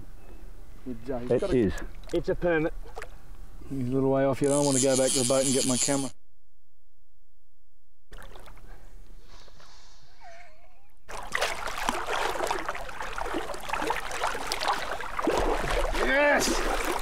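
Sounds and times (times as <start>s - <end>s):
water splashing and sloshing: 8.1s - 8.8s, 11.1s - 17.0s.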